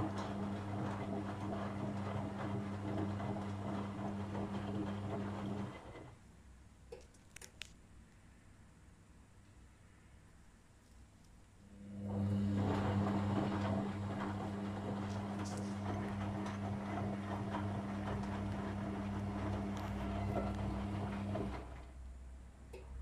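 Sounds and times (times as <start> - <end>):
washing machine motor hum: 0.0 - 6.2, 11.6 - 22.1.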